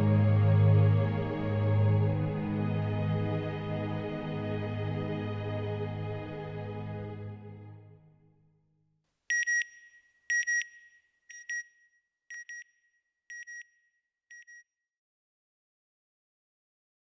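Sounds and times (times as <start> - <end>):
soft ambient music: 0.0 - 8.0.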